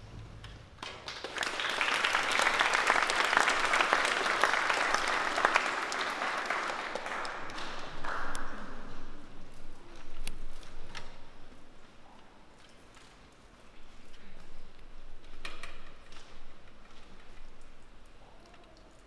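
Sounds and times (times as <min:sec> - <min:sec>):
audience applauding: 0:00.8 - 0:09.5.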